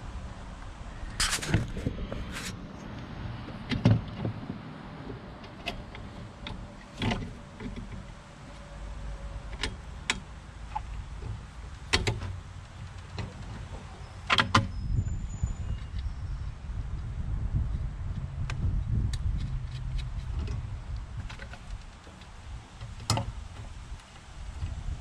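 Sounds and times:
low rumble: 0:14.7 - 0:21.3.

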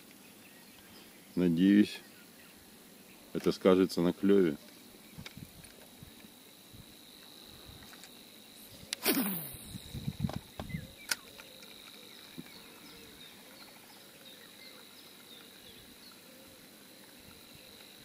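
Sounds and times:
insect drone: 0:00.3 - 0:18.0
small bird chirps: 0:08.5 - 0:16.5
sharp click: 0:08.8 - 0:11.9.

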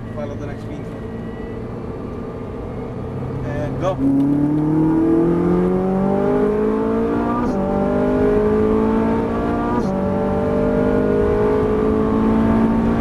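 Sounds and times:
car engine accelerating hard: 0:00.6 - 0:13.0.

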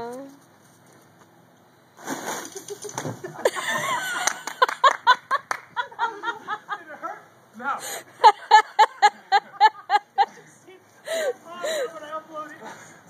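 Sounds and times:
people laughing: 0:02.5 - 0:07.2, 0:07.8 - 0:11.9.

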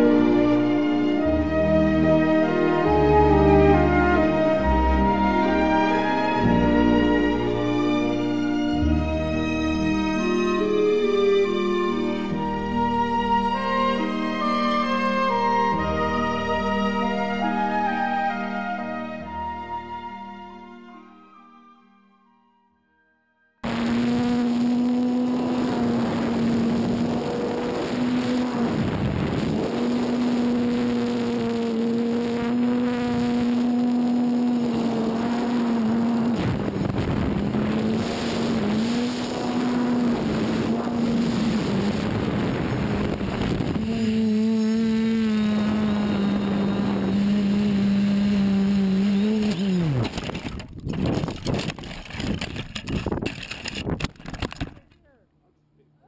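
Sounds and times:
drone motors buzzing: 0:23.6 - 0:54.7
drone crashing through tree branches: 0:31.8 - 0:52.4.

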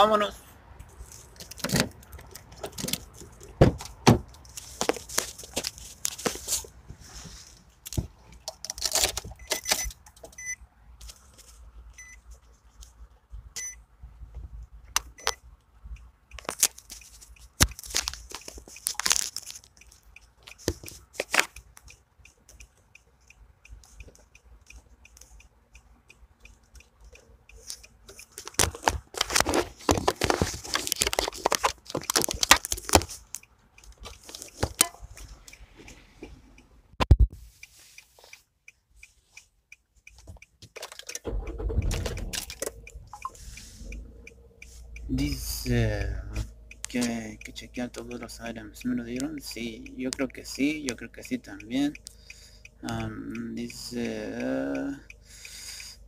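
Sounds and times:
short beeps: 0:09.4 - 0:10.6, 0:12.0 - 0:12.2, 0:13.6 - 0:13.8, 0:42.9 - 0:44.0
knocks and clicks of items: 0:40.2 - 0:43.4.

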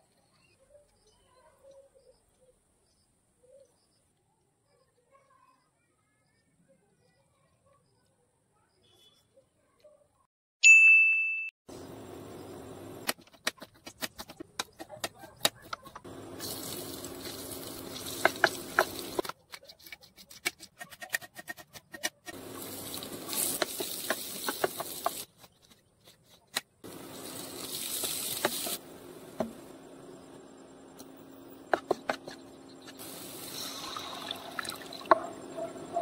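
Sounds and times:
garlic sizzling in oil: 0:16.1 - 0:19.3, 0:22.3 - 0:25.5, 0:26.9 - 0:29.8, 0:32.5 - 0:35.2.

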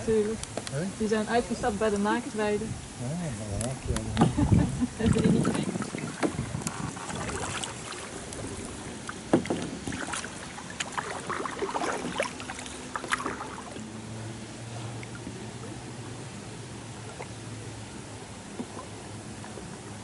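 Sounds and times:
kayak paddles splashing water: 0:04.2 - 0:20.0.

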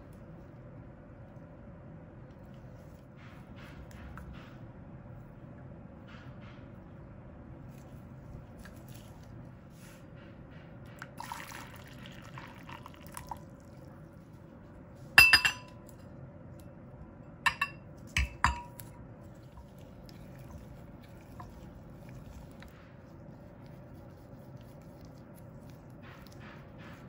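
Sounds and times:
glass-on-glass clinks: 0:15.2 - 0:15.8, 0:17.5 - 0:18.8.

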